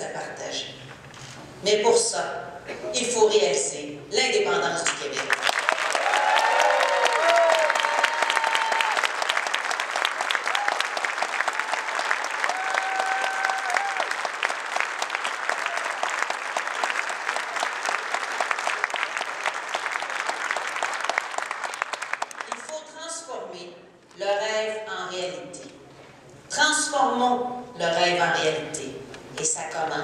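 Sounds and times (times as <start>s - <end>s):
audience applauding: 5.3s - 22.7s.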